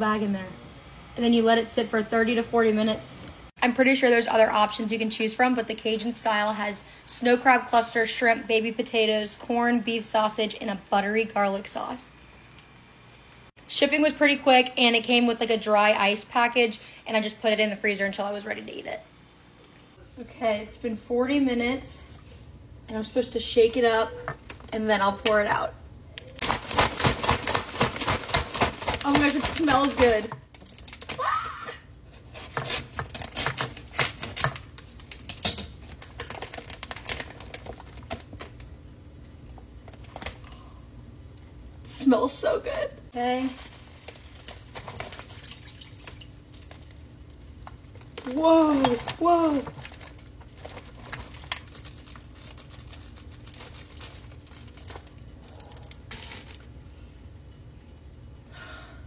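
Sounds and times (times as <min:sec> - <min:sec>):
plastic bag crinkling: 0:26.4 - 0:31.1, 0:33.0 - 0:38.7, 0:43.2 - 0:56.8.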